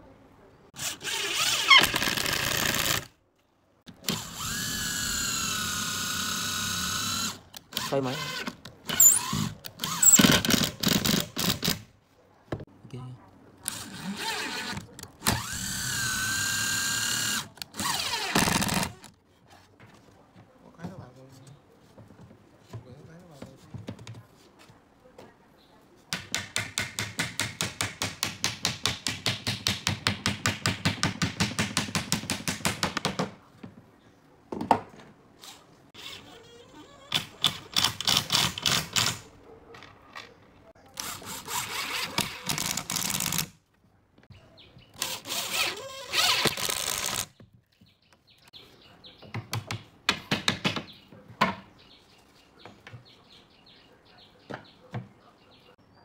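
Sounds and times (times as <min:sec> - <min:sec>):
drill driving screws into wood: 0:00.8 - 0:03.1, 0:03.9 - 0:11.8, 0:13.7 - 0:19.1, 0:37.1 - 0:39.2, 0:41.0 - 0:43.6, 0:45.0 - 0:47.3.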